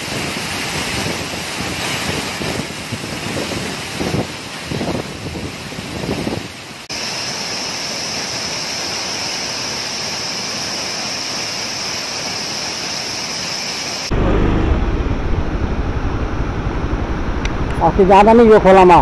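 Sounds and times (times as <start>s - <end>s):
wind buffeting microphone: 0.0s - 6.6s, 14.1s - 19.0s
waterfall rushing: 0.0s - 17.7s
motorcycle engine rumble: 14.1s - 17.9s.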